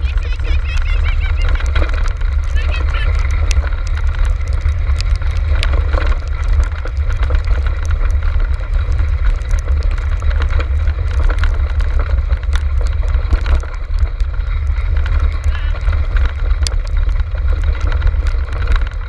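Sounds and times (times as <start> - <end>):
low rumble and buffeting: 0.0 - 19.0.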